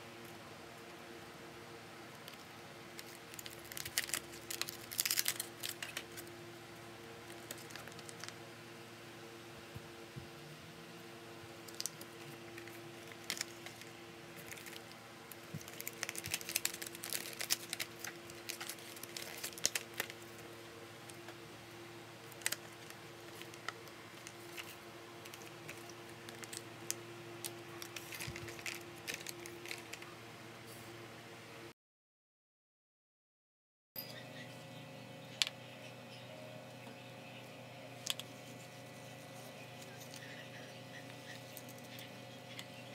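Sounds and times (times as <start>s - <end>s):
packaging crinkling: 2.2s - 6.3s, 7.2s - 8.4s, 11.6s - 20.4s, 22.3s - 30.1s.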